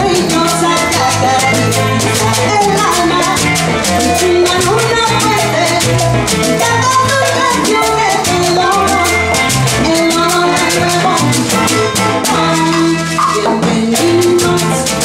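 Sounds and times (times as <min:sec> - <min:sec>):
gourd shaker rattling: 0:00.0 - 0:15.0
live band playing a waltz: 0:00.0 - 0:15.0.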